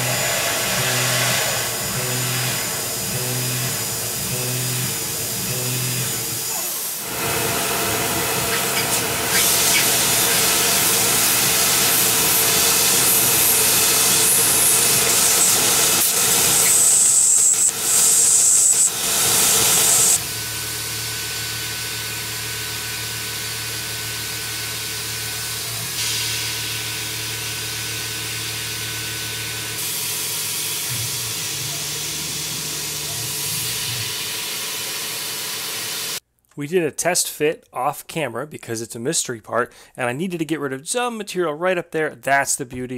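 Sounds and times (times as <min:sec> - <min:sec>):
milling machine cutting metal: 0:00.0 - 0:36.2
coolant nozzle hissing: 0:06.5 - 0:20.2.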